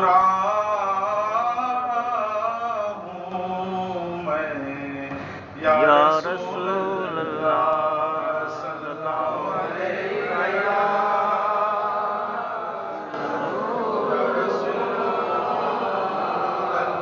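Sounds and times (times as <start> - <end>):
man singing unaccompanied: 0.0 - 12.2
breath: 5.1 - 5.6.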